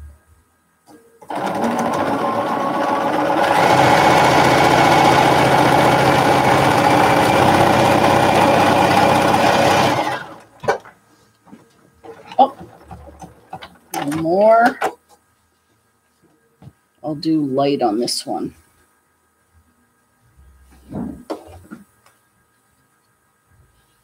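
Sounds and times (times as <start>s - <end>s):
sewing machine stitching: 1.2s - 10.8s, 12.0s - 14.4s.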